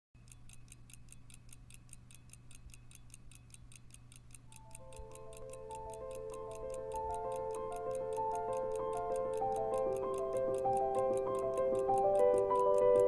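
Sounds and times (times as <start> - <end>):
pocket watch ticking: 0.2 - 13.0
soft background music: 4.6 - 13.0.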